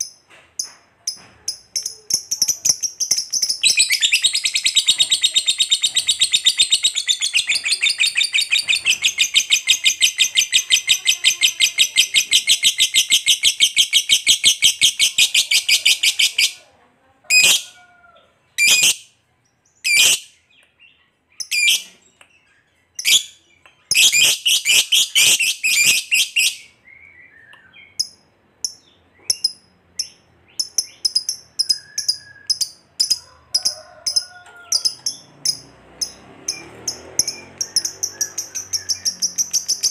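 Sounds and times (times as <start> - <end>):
high bird chirps: 0.0 - 16.6, 18.5 - 19.1, 19.7 - 33.8, 34.6 - 39.9
lovebird chattering trill: 1.5 - 16.6, 18.6 - 19.0, 19.8 - 20.3, 23.0 - 26.7, 27.8 - 34.2, 34.8 - 39.9.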